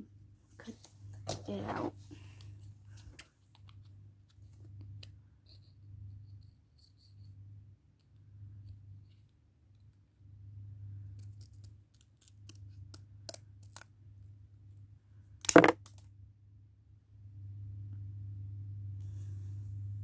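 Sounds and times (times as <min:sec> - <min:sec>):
low hum: 0:16.6 - 0:20.0.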